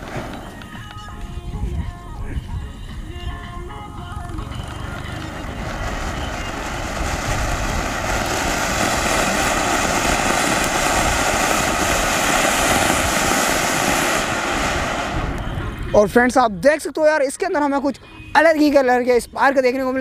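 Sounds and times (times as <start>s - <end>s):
firework fountain hissing: 0.0s - 15.8s.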